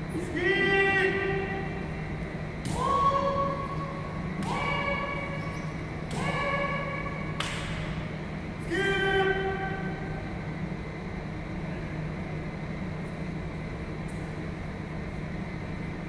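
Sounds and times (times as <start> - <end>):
high-pitched shouts: 2.7 - 3.8, 4.4 - 5.4, 6.1 - 7.3.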